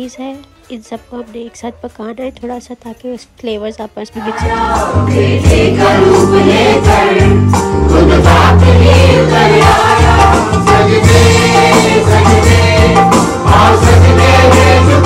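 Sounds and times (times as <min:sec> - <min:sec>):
group singing a carol: 0:04.2 - 0:15.0
electronic keyboard bass notes: 0:04.4 - 0:15.0.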